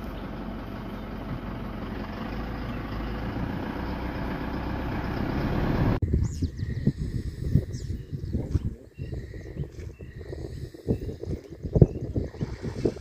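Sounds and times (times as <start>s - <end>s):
vehicle engine rumbling: 0.0s - 7.4s.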